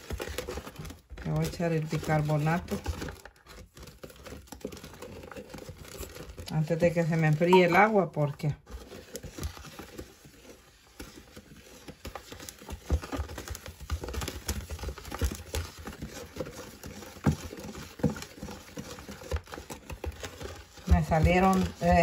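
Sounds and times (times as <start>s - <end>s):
stick blender sloshing: 0.0s - 22.0s.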